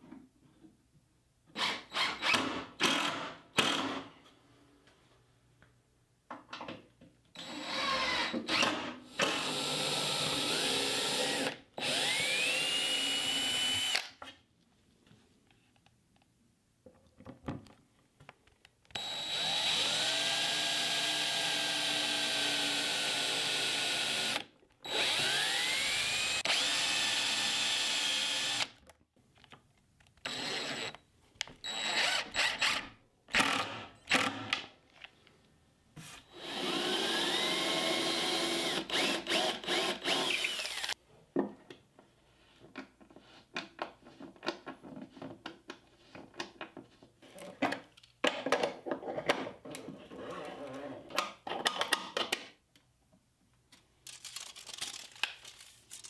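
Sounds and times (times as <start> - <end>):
power drill running: 7.4 - 14.1, 19.0 - 28.7, 30.2 - 31.0, 31.6 - 32.8, 36.3 - 41.0.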